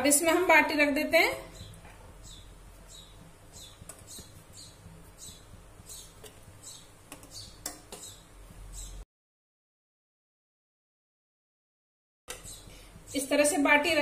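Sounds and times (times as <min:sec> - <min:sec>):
dough balls tapping on steel: 0:03.1 - 0:08.2.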